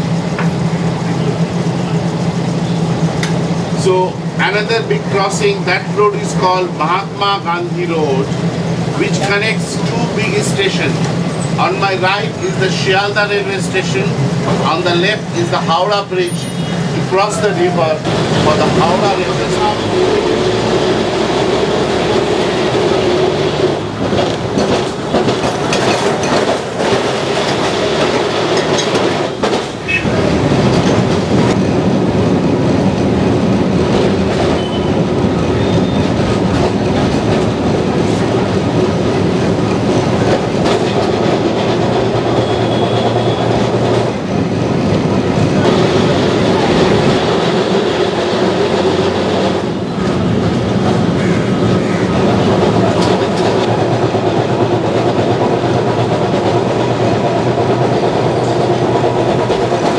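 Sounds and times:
tram body rumble and rattle: 0.0 - 59.9
wheels knocking on rails: 18.1 - 59.9.

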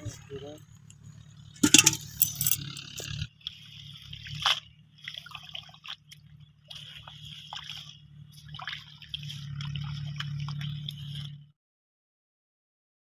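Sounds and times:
steady low hum: 0.0 - 11.5
hands squelching in wet mud: 3.4 - 11.4
water drips: 3.4 - 11.4.

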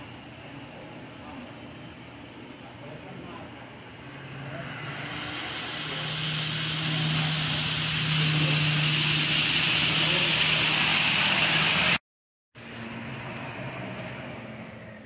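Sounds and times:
low motor hum: 0.0 - 12.0.

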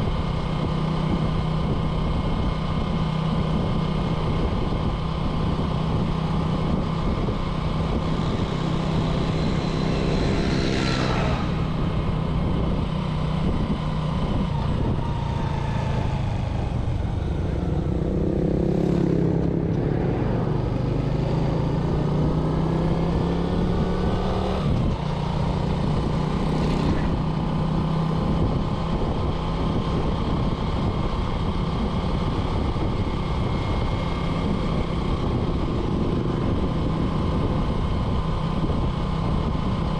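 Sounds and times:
motorcycle engine running: 0.0 - 39.9
wind noise: 0.0 - 39.9.

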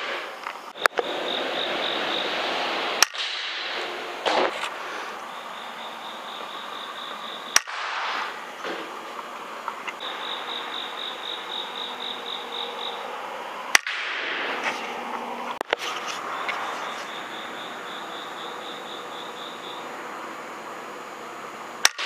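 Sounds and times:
high pulsed chirping: 0.8 - 4.2, 5.1 - 8.6, 10.0 - 13.4
air rifle shots: 2.2 - 4.8, 7.5 - 9.1, 13.7 - 14.9, 21.8 - 22.0.

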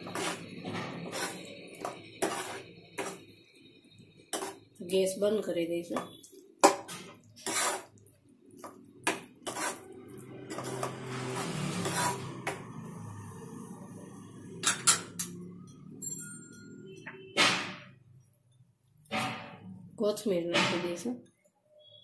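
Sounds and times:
spoon scraping pan: 0.0 - 3.4, 4.2 - 5.0, 5.9 - 12.8.

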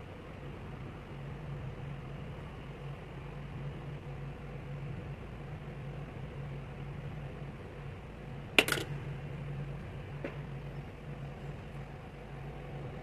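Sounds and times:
steady low hum: 0.0 - 13.0
metal socket clinking: 8.6 - 8.9.

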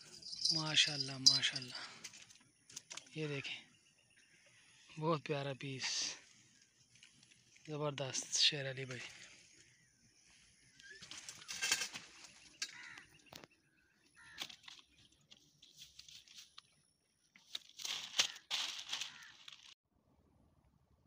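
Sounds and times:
rustling of grass and plastic bags: 17.4 - 19.8.

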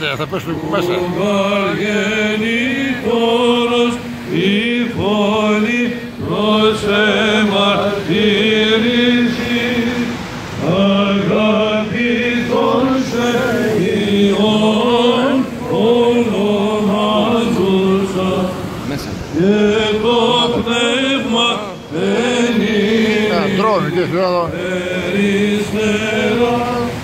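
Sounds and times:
held vocal drone: 0.2 - 27.0
men chanting a melody: 0.5 - 27.0.

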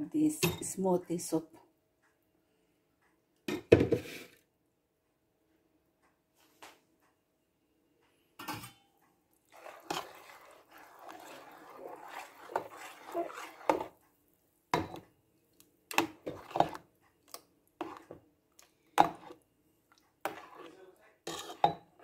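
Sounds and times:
spoon scraping in soup: 9.5 - 14.1, 15.9 - 22.0
spoon knocking against metal pot: 14.8 - 15.0.

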